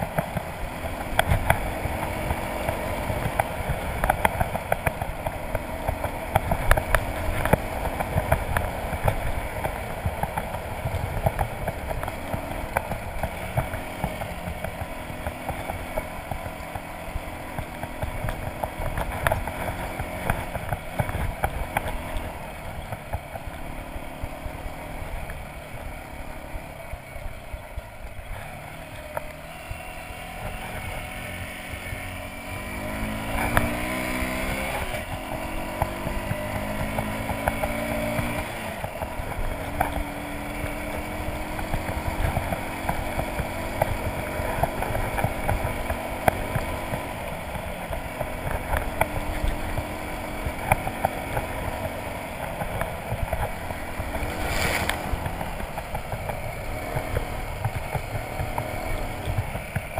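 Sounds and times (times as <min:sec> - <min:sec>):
motorcycle engine revving: 0:00.0 - 0:59.9
wind rumble on microphone: 0:52.6 - 0:58.6.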